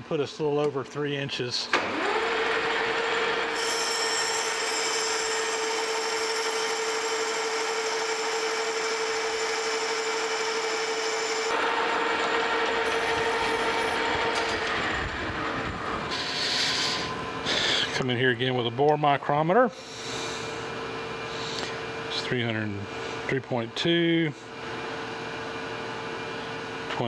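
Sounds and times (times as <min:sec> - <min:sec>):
lathe machine hum: 0:01.8 - 0:18.0
boring tool cutting hiss: 0:03.5 - 0:11.5.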